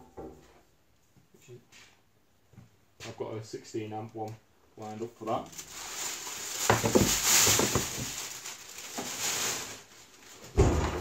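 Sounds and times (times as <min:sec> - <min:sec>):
plastic packaging crinkling: 0:05.3 - 0:10.6
heavy thump of unit set down: 0:10.6 - 0:11.0.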